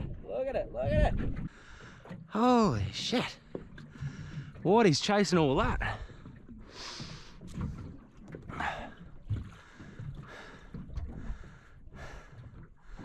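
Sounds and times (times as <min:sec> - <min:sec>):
wind on microphone: 0:00.0 - 0:01.5
water lapping around boat: 0:00.0 - 0:13.0.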